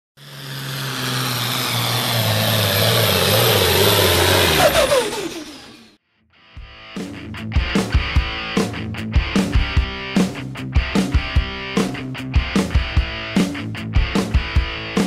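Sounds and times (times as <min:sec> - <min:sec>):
diesel engine under full load: 0:00.2 - 0:06.0
electric guitar music: 0:06.4 - 0:15.0.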